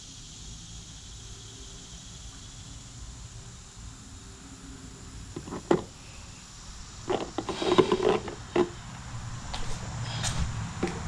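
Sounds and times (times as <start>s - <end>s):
hollow knocks and rattles: 5.4s - 5.9s, 7.1s - 8.8s.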